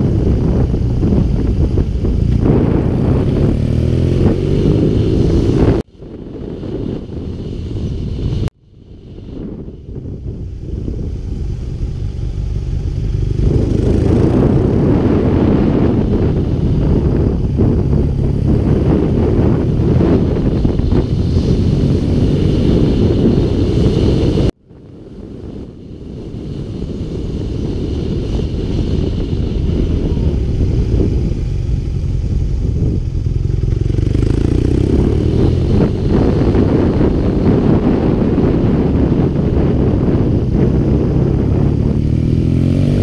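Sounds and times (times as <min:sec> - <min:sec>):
motorcycle engine rumble: 0:00.0 - 0:43.0
wind rushing over camera: 0:00.0 - 0:43.0.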